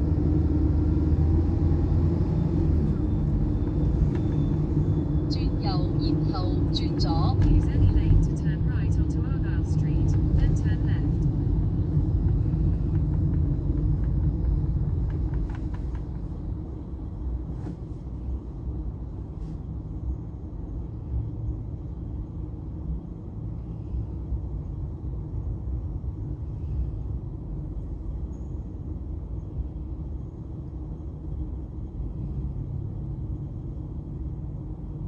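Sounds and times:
car engine and tyre rumble: 0.0s - 35.0s.

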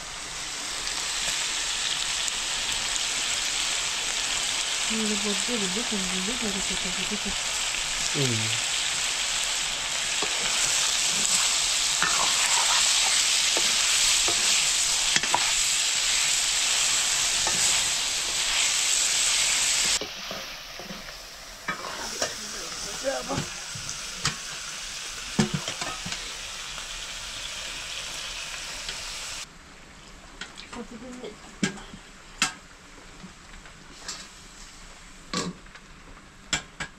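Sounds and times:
meat sizzling in a wok: 0.0s - 29.5s.

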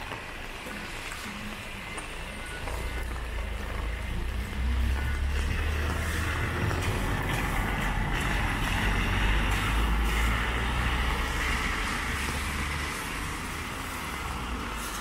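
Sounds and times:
vehicle low rumble: 2.8s - 15.0s
tyres hissing on wet road: 4.5s - 15.0s
rain: 9.5s - 15.0s.

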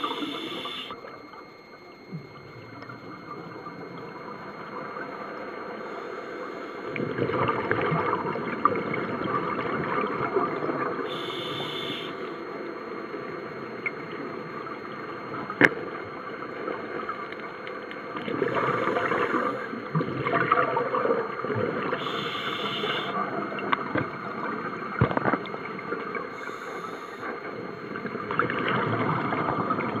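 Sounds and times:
hissing regulator inhalations: 0.0s - 0.9s, 11.1s - 12.2s, 22.0s - 23.2s
bubbly gurgling exhalations: 18.2s - 22.1s.

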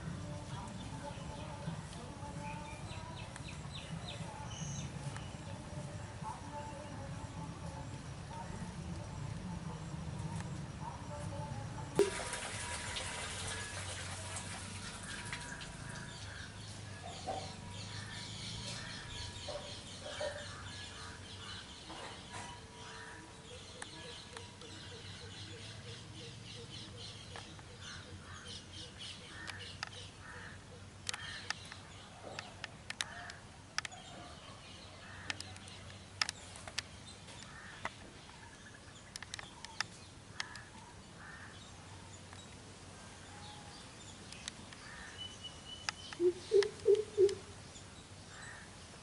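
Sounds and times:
small birds chirping: 0.0s - 12.0s, 13.4s - 49.0s
sharp clicks: 31.0s - 34.0s, 35.2s - 38.0s, 39.1s - 40.8s.

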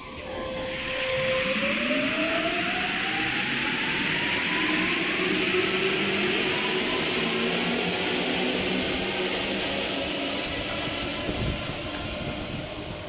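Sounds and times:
metro train running past: 0.0s - 13.0s.

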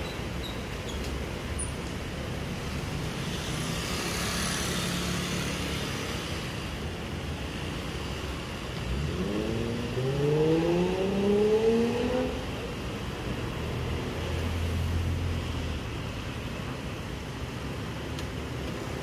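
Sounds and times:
vehicle engine accelerating: 8.8s - 12.4s.

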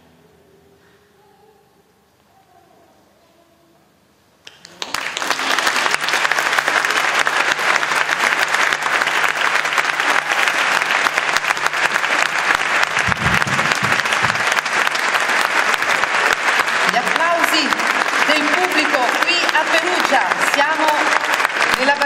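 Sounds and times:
audience applauding: 4.5s - 22.0s
low thumps: 12.9s - 14.6s.

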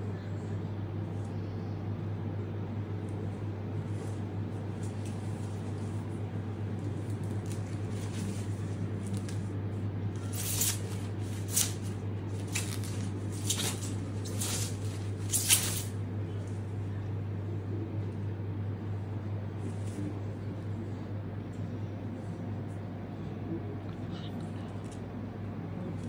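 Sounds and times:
steady low hum: 0.0s - 26.0s
plastic bag rustling: 10.2s - 16.0s.

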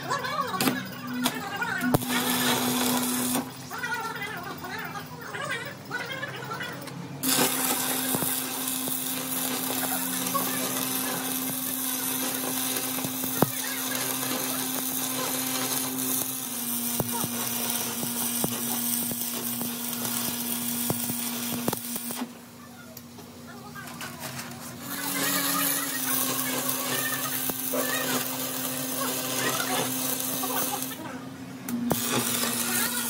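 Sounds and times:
power tool motor on metal: 1.8s - 3.5s, 7.2s - 22.4s, 24.8s - 31.1s, 31.9s - 33.0s.

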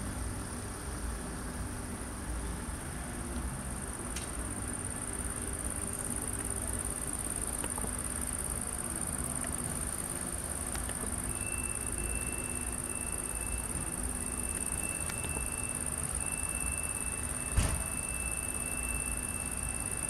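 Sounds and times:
crickets chirping: 0.0s - 20.0s
thin high tone: 11.1s - 20.0s.

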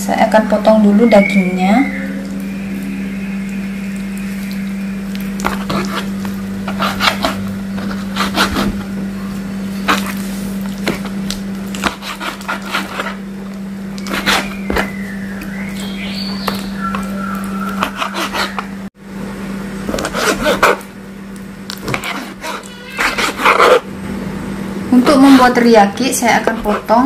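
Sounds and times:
low hum: 0.0s - 20.0s.

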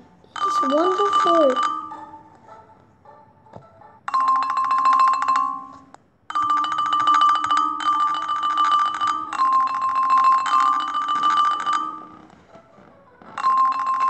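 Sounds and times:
background music: 0.0s - 14.0s.

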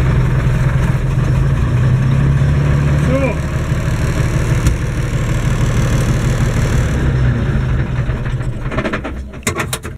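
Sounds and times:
tractor diesel engine running: 0.0s - 9.9s.

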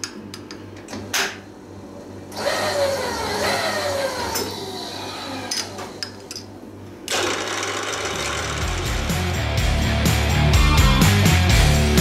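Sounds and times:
milling machine cutting metal: 2.4s - 6.0s, 7.1s - 9.2s.

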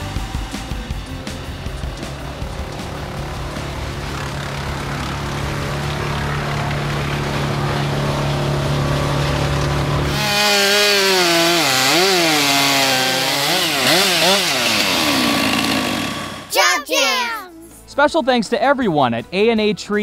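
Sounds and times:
wood chipper engine droning: 0.0s - 16.5s
chainsaw cutting log: 7.2s - 16.6s.

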